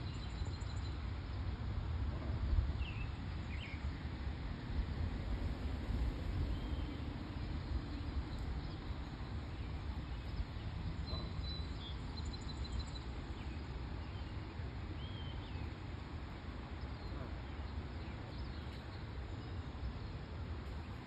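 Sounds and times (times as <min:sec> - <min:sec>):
small birds chirping: 0:06.5 - 0:15.9.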